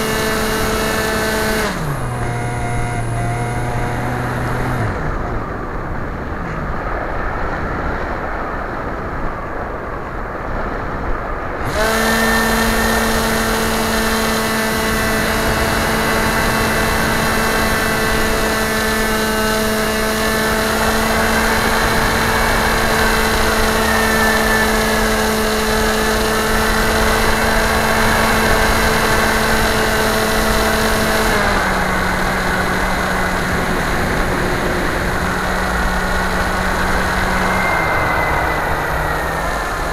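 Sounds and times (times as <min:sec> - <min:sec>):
model airplane motor and propeller: 0:00.0 - 0:06.8, 0:11.6 - 0:39.9
air rushing past: 0:31.3 - 0:39.9.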